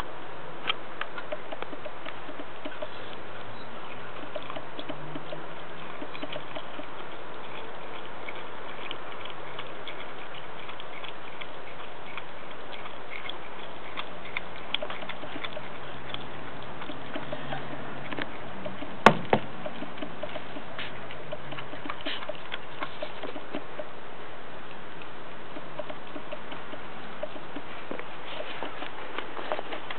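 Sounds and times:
puppy chewing and eating: 0.0s - 29.9s.

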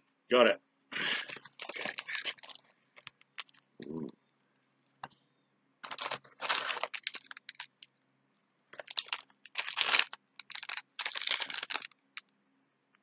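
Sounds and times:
plastic packet crinkling: 1.2s - 3.6s, 5.8s - 7.9s, 8.7s - 12.0s.

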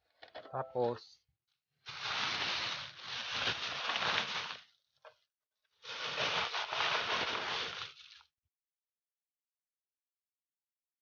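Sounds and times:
dry substrate rustling and scraping: 1.9s - 4.6s, 5.8s - 8.2s.

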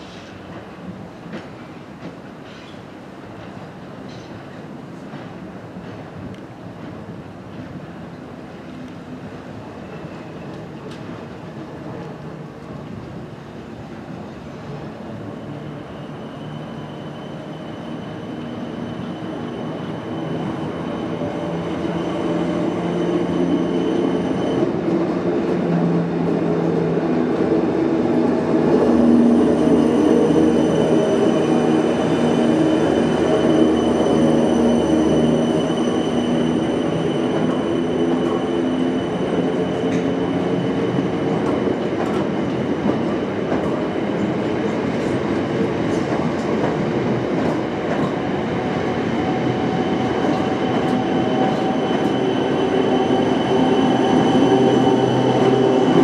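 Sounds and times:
electric train pulling in: 14.2s - 56.0s.

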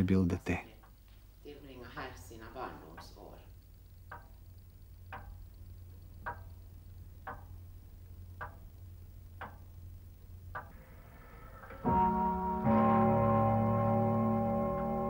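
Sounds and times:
clock ticking: 2.0s - 10.8s
music with sustained chords: 10.8s - 15.0s.

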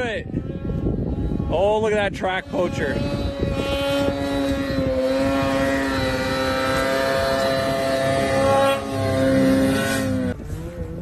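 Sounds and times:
snowmobile engine revving: 0.0s - 11.0s.

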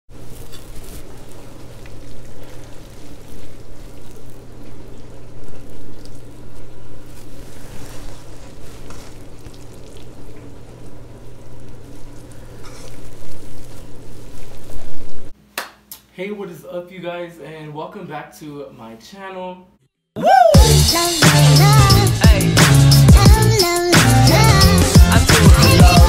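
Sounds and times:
pasta sizzling in skillet: 0.1s - 15.4s
steady low hum: 0.1s - 15.4s
tongs scraping and clicking on pan: 0.4s - 1.1s.

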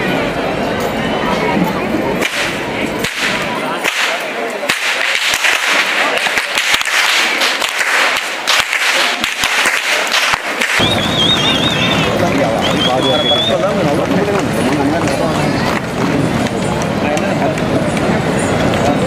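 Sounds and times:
whips cracking: 2.2s - 11.0s.

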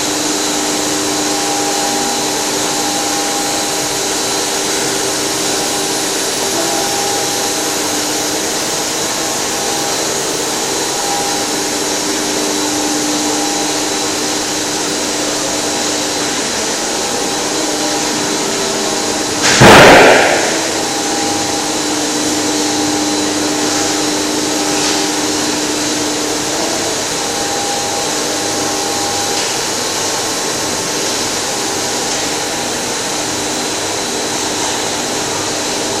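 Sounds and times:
steady machine tones: 0.0s - 34.3s
motors and fans humming: 0.0s - 36.0s
loud rush of noise: 15.6s - 22.2s.

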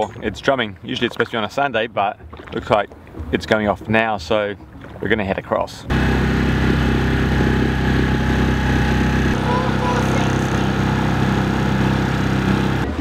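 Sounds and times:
outboard motor running: 5.9s - 13.0s.

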